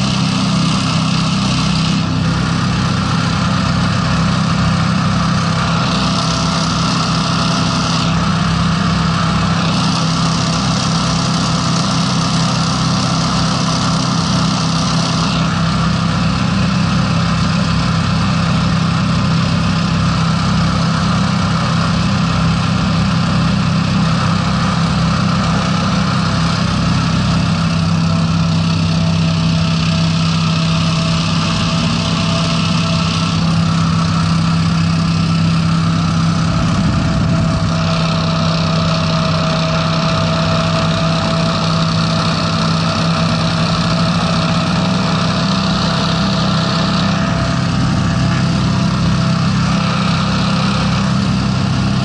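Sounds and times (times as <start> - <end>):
hovercraft engines running: 0.0 - 52.0.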